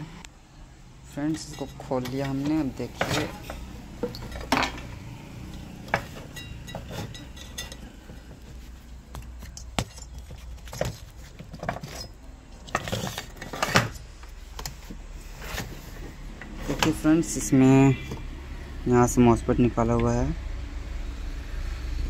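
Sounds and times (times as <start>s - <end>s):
low steady hum: 0.0s - 21.4s
charger parts clinking and rattling: 1.2s - 14.8s.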